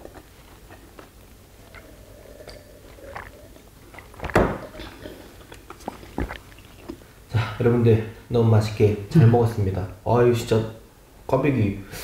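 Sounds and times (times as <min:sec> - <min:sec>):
soft chewing clicks: 0:00.0 - 0:07.1
swallowing gulps: 0:00.0 - 0:07.6.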